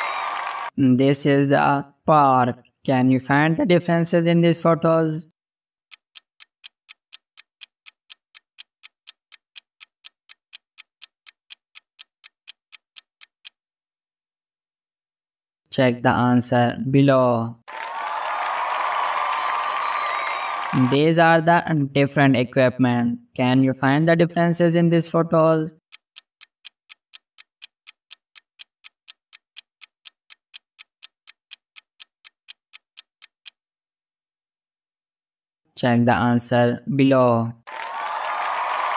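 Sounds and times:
clock ticking: 5.9s - 13.6s, 24.5s - 33.6s.

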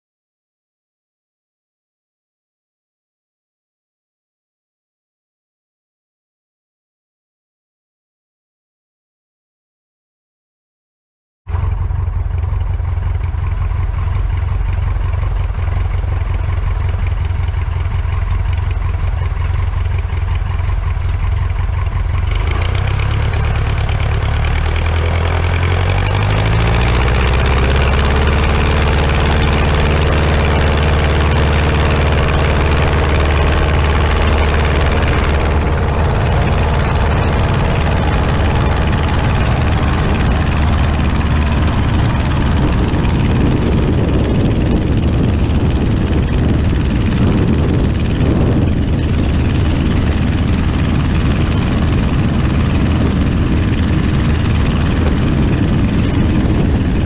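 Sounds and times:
propeller plane engine idling and revving: 11.5s - 57.0s.

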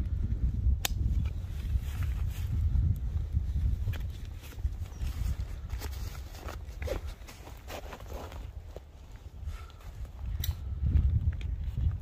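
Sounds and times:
wind buffeting the microphone: 0.0s - 12.0s.

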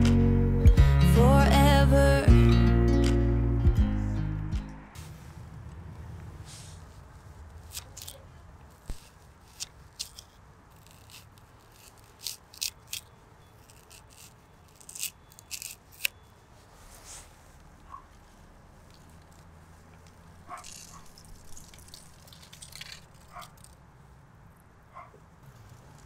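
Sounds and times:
faint low rumble: 0.0s - 8.8s.

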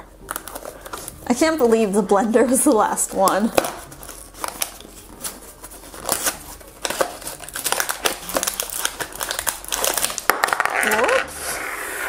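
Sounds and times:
packaging crinkling: 3.3s - 11.3s
cardboard box crackling open: 3.6s - 11.3s.

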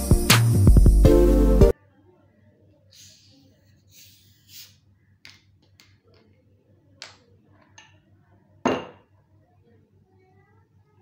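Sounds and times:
glass clinking: 8.7s - 9.0s.

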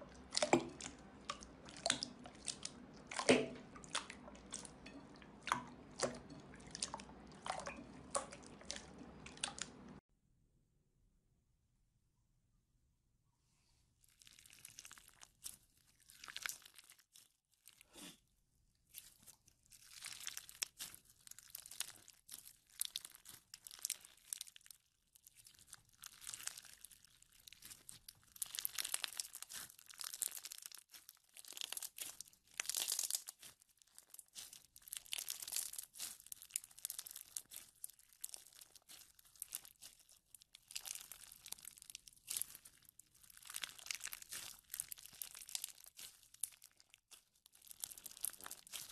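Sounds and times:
slime crunching and popping: 14.1s - 18.0s, 18.8s - 48.9s.

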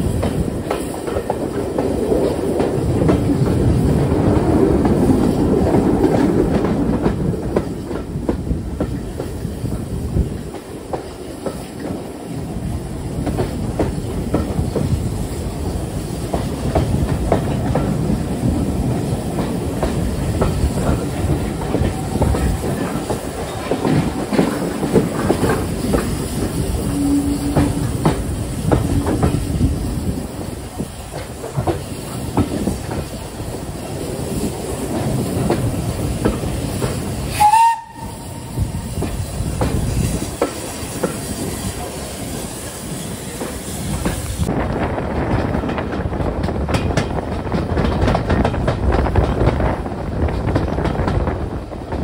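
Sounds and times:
train wheels clicking over rail joints: 0.0s - 52.0s
steam whistle blast: 26.7s - 28.1s, 37.3s - 39.0s.

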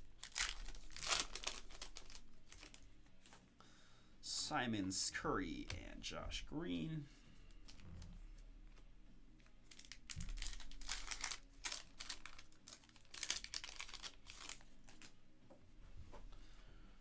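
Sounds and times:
wrapper crinkling and tearing: 0.0s - 3.4s, 7.6s - 7.9s, 9.4s - 15.2s.

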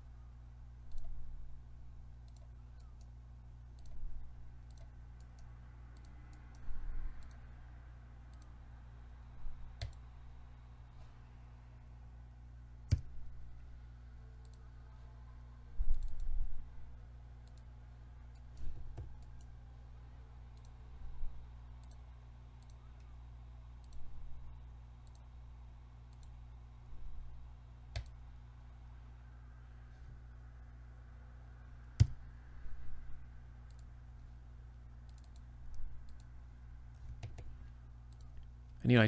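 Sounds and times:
steady low hum: 0.0s - 39.0s
computer mouse clicks: 0.9s - 1.2s, 2.2s - 3.1s, 3.8s - 7.5s, 8.3s - 8.5s, 9.8s - 10.0s, 12.9s - 13.1s, 14.4s - 14.7s, 15.9s - 16.4s, 17.4s - 17.7s, 20.6s - 20.8s, 21.8s - 22.0s, 22.6s - 23.1s, 23.8s - 24.2s, 25.0s - 25.3s, 26.1s - 26.4s, 27.9s - 28.2s, 32.0s - 32.3s, 33.7s - 34.3s, 35.0s - 36.3s, 37.0s - 38.5s.

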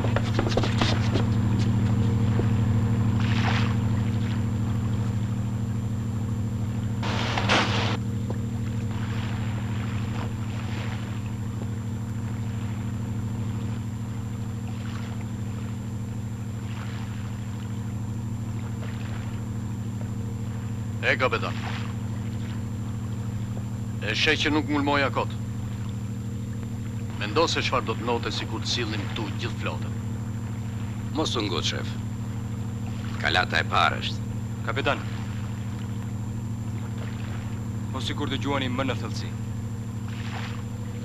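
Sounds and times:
boat engine low drone: 0.0s - 41.0s
short noises: 7.0s - 8.0s.

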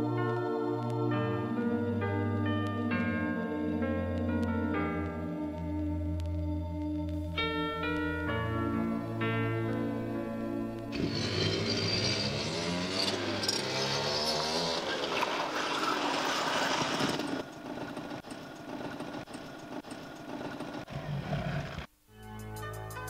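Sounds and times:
music: 0.0s - 12.3s, 22.1s - 23.0s
motorbike engines revving: 10.9s - 21.9s.

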